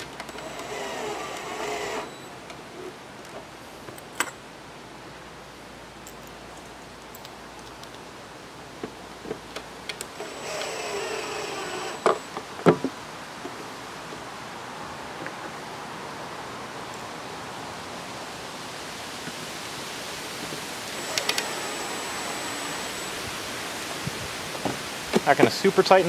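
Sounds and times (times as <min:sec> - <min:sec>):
cordless drill driving screw: 0:00.2 - 0:02.3, 0:10.0 - 0:12.3, 0:20.8 - 0:23.8.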